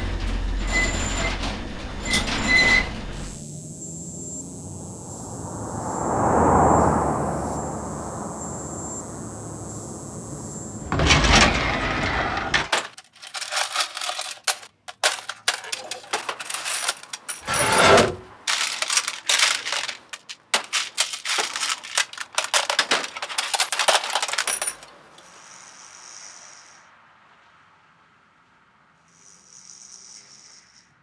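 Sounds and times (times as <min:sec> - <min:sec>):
metal bolts clattering in drawers: 0:10.9 - 0:25.0.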